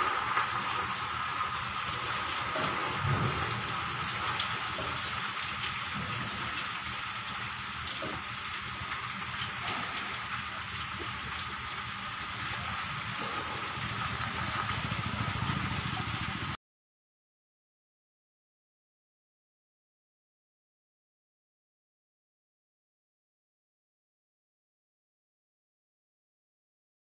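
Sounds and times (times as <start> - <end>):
steady rain falling: 0.0 - 16.6.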